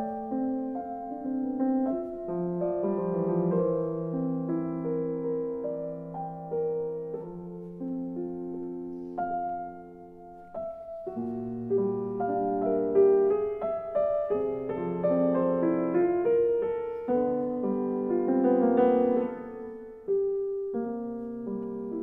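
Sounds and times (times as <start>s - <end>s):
gentle piano music: 0.0s - 22.0s.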